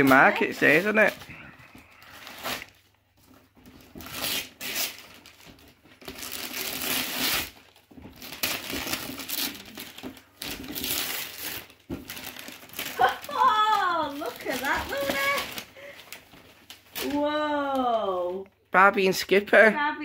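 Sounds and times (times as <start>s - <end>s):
wrapping paper tearing and crumpling: 0.0s - 18.4s.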